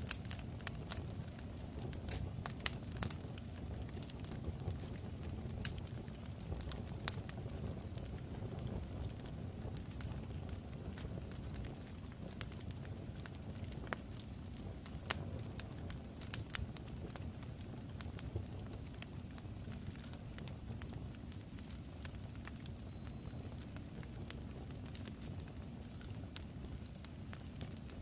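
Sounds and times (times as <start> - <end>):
fire crackling and popping: 0.0 - 28.0
faint high whistle: 18.0 - 26.9.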